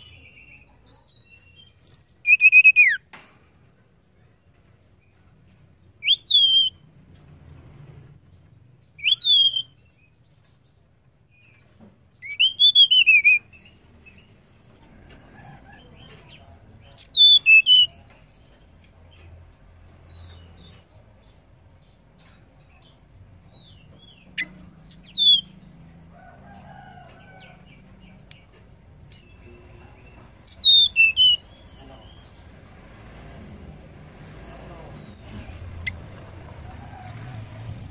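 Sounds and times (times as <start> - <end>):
bird whistling calls: 1.8 - 3.0, 6.0 - 6.8, 9.0 - 9.8, 12.2 - 13.5, 16.7 - 18.0, 24.4 - 25.5, 30.2 - 31.4.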